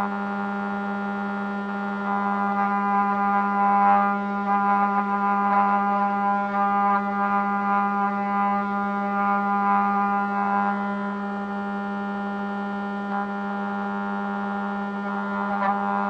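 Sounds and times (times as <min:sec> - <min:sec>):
router spindle whine: 0:00.0 - 0:16.0
bit carving wood: 0:02.1 - 0:10.9, 0:15.0 - 0:16.0.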